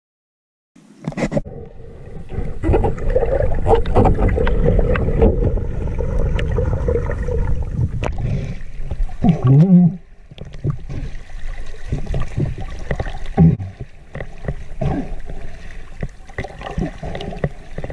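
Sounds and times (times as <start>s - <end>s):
underwater water rumble: 1.2s - 17.9s
underwater clicks and knocks: 2.3s - 8.2s, 10.3s - 11.0s, 11.8s - 17.9s.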